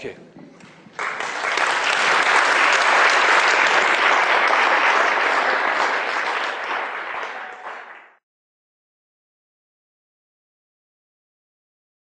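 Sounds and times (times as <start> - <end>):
audience applauding: 0.6 - 8.2.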